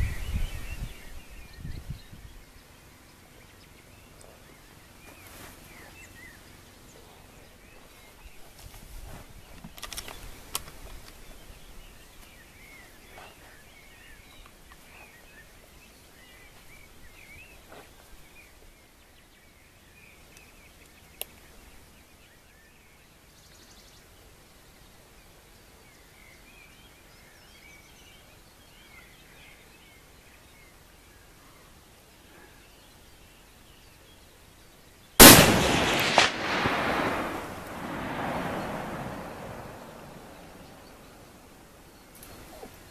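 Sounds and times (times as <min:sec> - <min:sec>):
small birds chirping: 0:00.0 - 0:42.9
rustling: 0:05.0 - 0:06.2
sharp clicks: 0:09.6 - 0:11.2.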